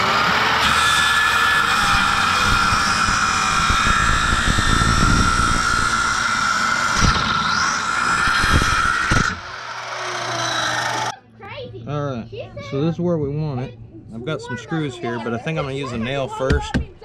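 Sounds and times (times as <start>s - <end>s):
circular saw cutting wood: 0.0s - 11.1s
saw blade spinning down: 0.0s - 11.1s.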